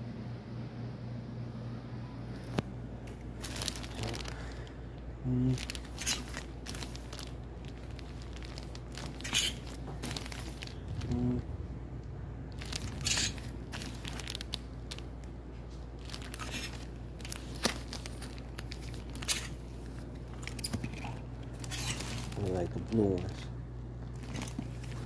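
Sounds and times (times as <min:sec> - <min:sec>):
steady low hum: 0:00.0 - 0:25.0
plastic bags crinkling: 0:03.1 - 0:11.5, 0:12.4 - 0:25.0.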